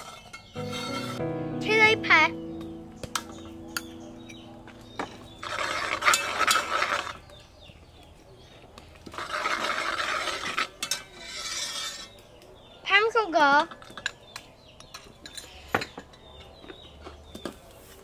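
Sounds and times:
metal ladle scraping a pot: 0:00.0 - 0:01.2, 0:05.3 - 0:07.3, 0:09.0 - 0:12.2.

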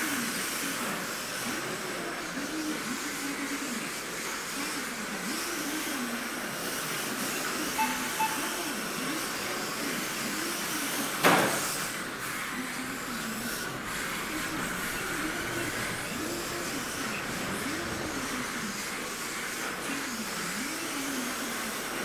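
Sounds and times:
toy car electric motor whine: 0:00.0 - 0:22.0
short beeps: 0:07.8 - 0:08.8.

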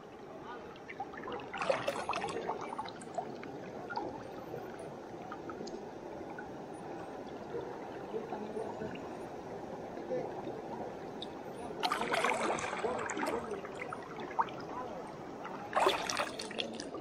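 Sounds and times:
river water gurgling: 0:00.0 - 0:17.0
faint ticks: 0:04.6 - 0:06.9.

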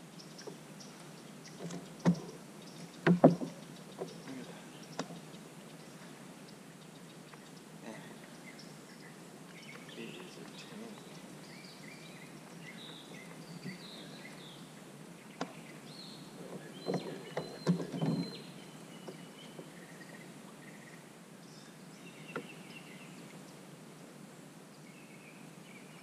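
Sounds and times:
faint outdoor hiss: 0:00.0 - 0:26.0
small birds chirping: 0:00.1 - 0:23.6
knocks and thumps in kayak: 0:01.6 - 0:02.4, 0:03.0 - 0:04.1, 0:16.4 - 0:19.8.

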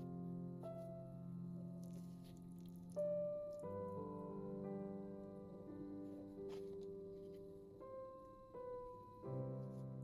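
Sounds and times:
slow piano music: 0:00.0 - 0:10.0.

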